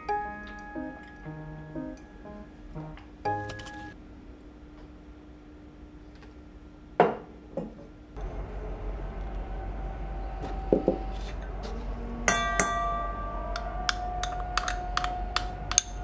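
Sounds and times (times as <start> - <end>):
metal bowl ringing: 12.3 - 16.0.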